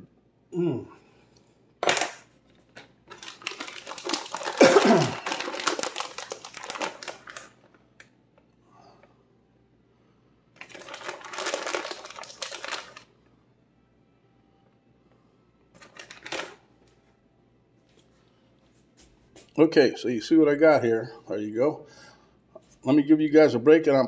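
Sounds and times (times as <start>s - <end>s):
crinkly material rustling: 2.6s - 7.8s, 10.6s - 13.1s.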